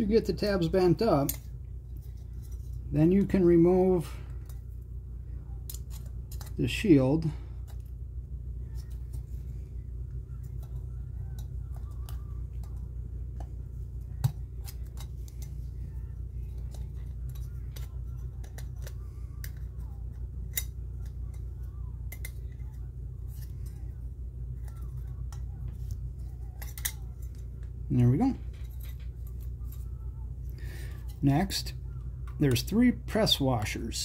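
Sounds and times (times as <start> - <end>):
low hum: 0.0 - 34.0
screwdriver clicking and scraping metal: 5.7 - 6.6, 26.5 - 27.4.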